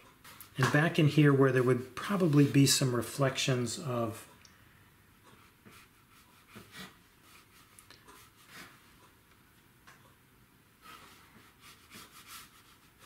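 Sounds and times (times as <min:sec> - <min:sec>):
brush strokes on paper: 0:00.2 - 0:03.3, 0:05.4 - 0:09.0, 0:10.8 - 0:13.0.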